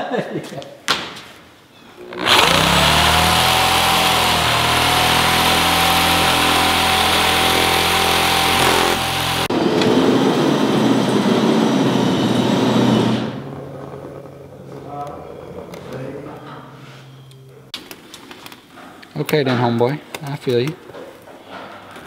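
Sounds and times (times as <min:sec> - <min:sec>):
shear cutting metal sheet: 0:02.0 - 0:13.5
electric shear motor whine: 0:02.0 - 0:14.2.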